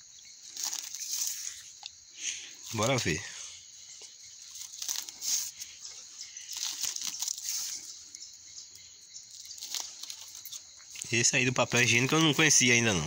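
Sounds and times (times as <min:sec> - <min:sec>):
plastic tape crinkling: 0:00.4 - 0:01.7, 0:04.5 - 0:05.6, 0:06.4 - 0:07.9, 0:09.3 - 0:11.2.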